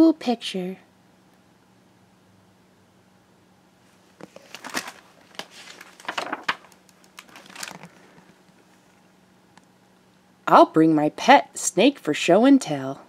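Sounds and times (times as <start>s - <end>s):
paper rustling and crinkling: 4.2s - 8.9s.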